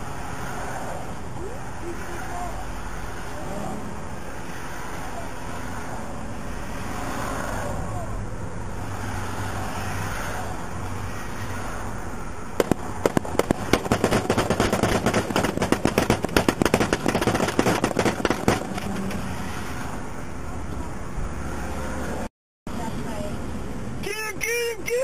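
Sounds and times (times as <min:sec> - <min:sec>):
engine and road noise hum: 0:00.0 - 0:25.0
rapid gunshots: 0:12.6 - 0:19.0.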